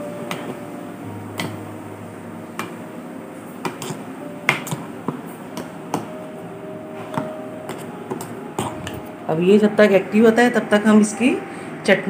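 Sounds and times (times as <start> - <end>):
spoon stirring batter: 0.2 - 0.7, 1.3 - 1.8, 2.5 - 2.8, 3.5 - 6.3, 7.0 - 9.1.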